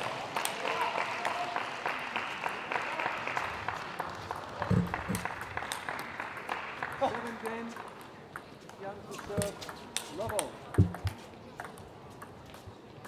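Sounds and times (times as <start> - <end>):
spectators applauding: 0.0 - 7.8.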